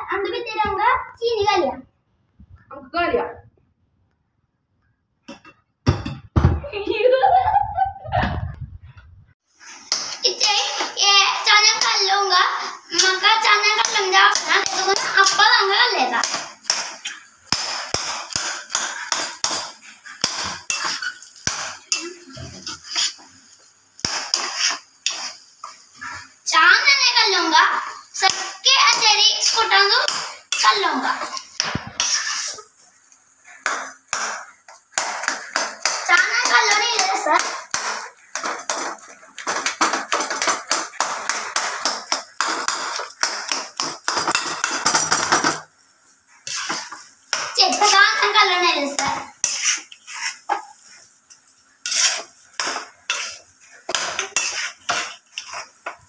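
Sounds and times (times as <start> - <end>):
metal utensils and dishes clattering: 16.2 - 23.3, 33.5 - 45.7, 49.0 - 56.0.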